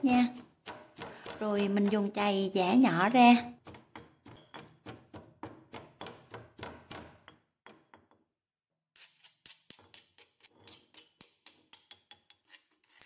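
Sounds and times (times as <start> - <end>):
pestle pounding in stone mortar: 0.0 - 8.2
metal spoon scraping stone: 9.0 - 13.0.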